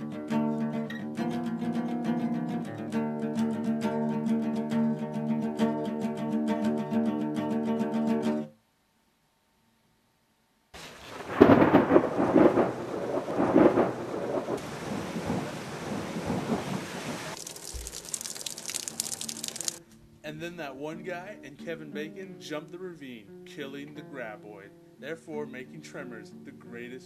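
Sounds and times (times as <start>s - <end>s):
guitar-like music: 0.0s - 8.5s, 18.6s - 27.0s
heavy rain hissing: 10.8s - 19.8s
rolling thunder: 11.0s - 17.4s.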